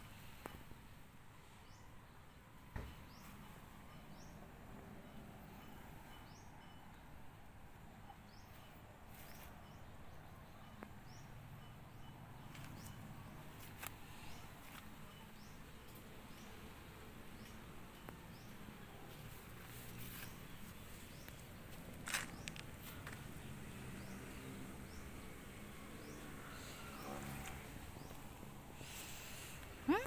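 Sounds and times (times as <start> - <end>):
faint high chirp: 7.9 - 16.6.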